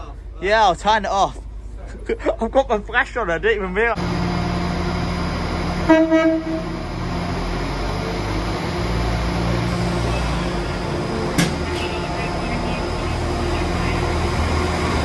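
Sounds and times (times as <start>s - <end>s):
diesel engine rumble: 0.0s - 15.0s
train horn blast: 5.8s - 7.0s, 8.5s - 13.0s.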